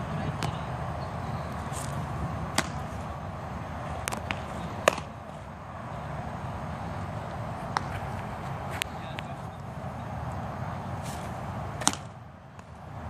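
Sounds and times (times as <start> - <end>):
outdoor background hiss: 0.0 - 13.0
baseball smacking into leather glove: 1.8 - 2.9, 4.0 - 5.1, 7.7 - 8.1, 11.8 - 12.7.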